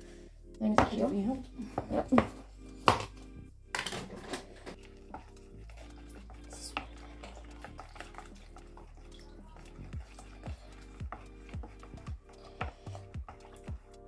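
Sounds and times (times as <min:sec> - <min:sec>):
dough scraping and clicking in bowl: 0:03.8 - 0:14.0.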